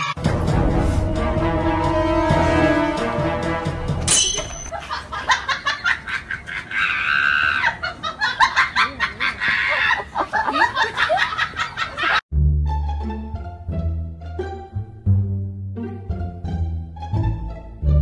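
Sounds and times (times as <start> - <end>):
low plucked-string music: 12.3 - 18.0.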